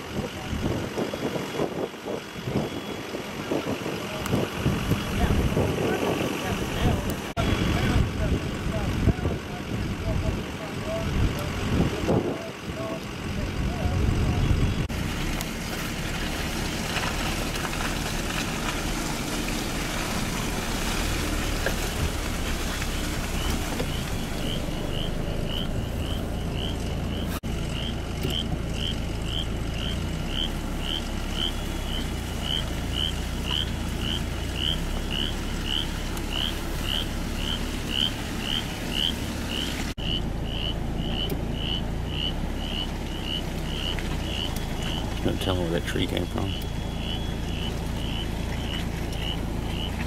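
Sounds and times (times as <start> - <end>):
steady low rumble: 4.0 - 50.0
frog chirping: 22.7 - 45.2, 45.9 - 50.0.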